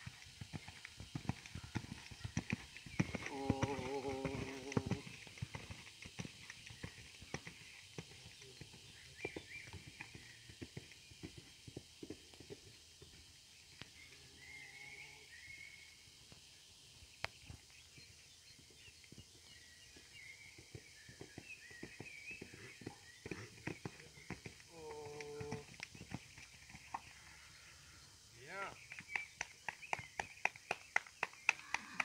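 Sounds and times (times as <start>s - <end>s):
horse hooves cantering on sand: 0.0s - 14.0s, 16.4s - 27.2s
small birds chirping: 0.2s - 32.0s.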